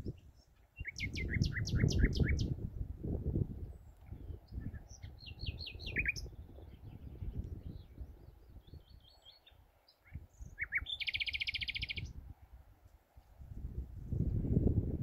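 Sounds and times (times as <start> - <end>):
nightingale singing: 0.0 - 2.6, 3.6 - 12.2.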